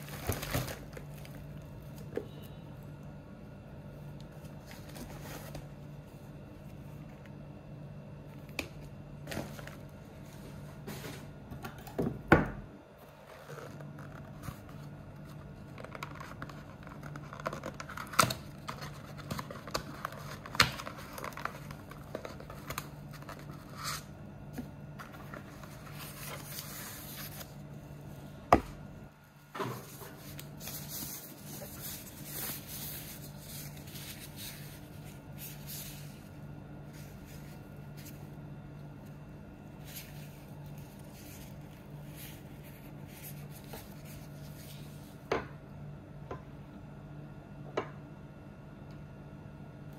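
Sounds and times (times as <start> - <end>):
cardboard rustling and crinkling: 0.0 - 2.3, 4.3 - 7.2, 8.7 - 11.4, 13.0 - 27.7, 28.6 - 38.4, 39.6 - 45.2
low steady hum: 0.0 - 49.9.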